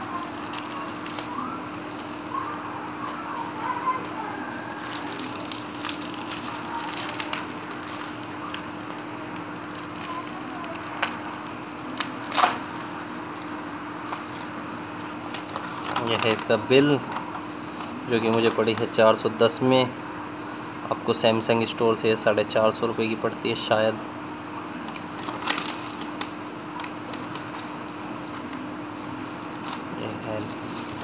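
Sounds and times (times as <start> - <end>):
plastic wrapping crinkling: 0.0 - 12.9, 15.2 - 16.6, 25.1 - 31.0
steady low hum: 0.0 - 31.0.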